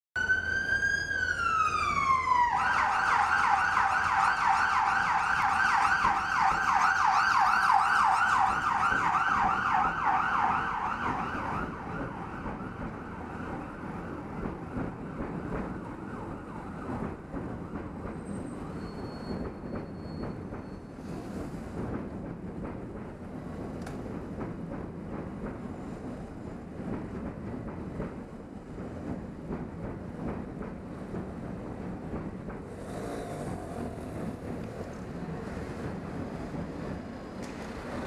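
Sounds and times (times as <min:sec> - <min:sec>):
traffic noise: 0:00.2 - 0:22.4, 0:30.8 - 0:38.0.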